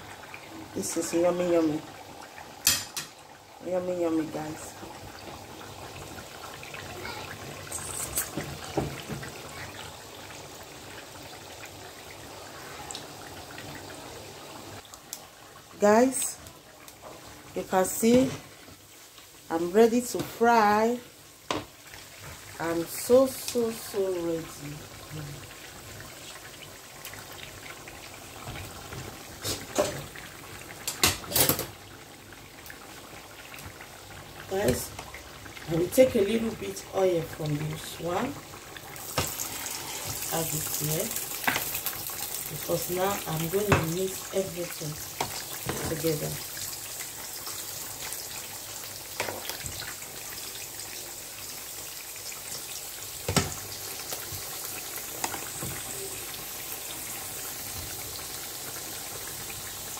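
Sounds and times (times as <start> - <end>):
liquid bubbling in pots: 0.0 - 19.5, 20.7 - 59.9
cookware clattering: 2.6 - 3.2.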